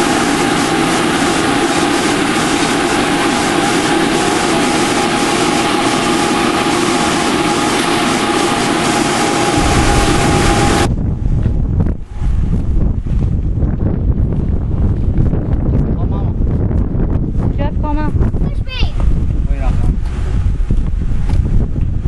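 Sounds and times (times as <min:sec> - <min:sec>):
workshop machinery hiss and whine: 0:00.0 - 0:10.9
wind buffeting microphone: 0:01.4 - 0:22.0.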